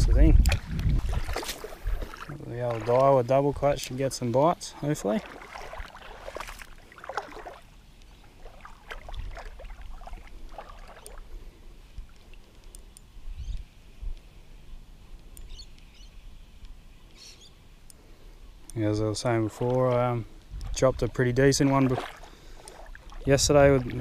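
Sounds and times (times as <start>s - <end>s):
wind rumbling on microphone: 0.0s - 4.1s, 8.2s - 12.4s, 13.1s - 16.9s, 20.2s - 22.2s, 23.0s - 24.0s
high bird chirps: 15.4s - 16.2s, 17.1s - 17.6s.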